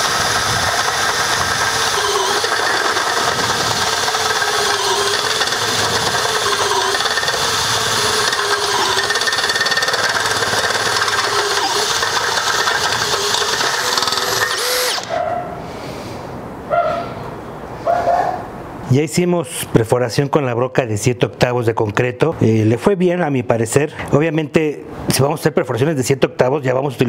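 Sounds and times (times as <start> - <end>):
hammer drill boring into concrete: 0.0 - 15.1.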